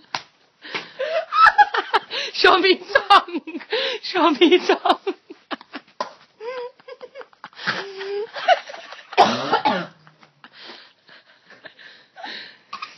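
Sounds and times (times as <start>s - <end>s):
woman coughing: 9.1s - 10.0s.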